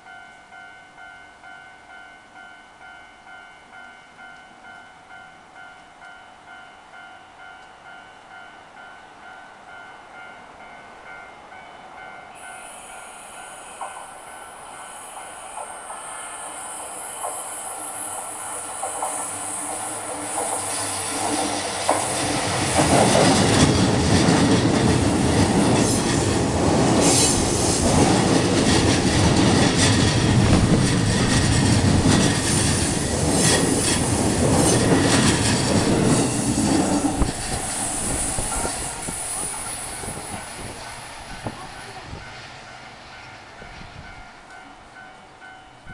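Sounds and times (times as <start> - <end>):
crossing warning tone: 0.0 - 21.1
electric train passing: 0.0 - 45.9
train wheels clattering over rail joints: 18.5 - 41.7.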